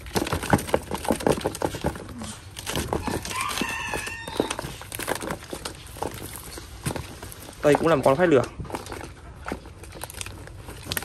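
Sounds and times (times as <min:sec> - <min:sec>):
rustling and clicking: 0:00.0 - 0:11.0
rooster crowing: 0:03.0 - 0:04.8.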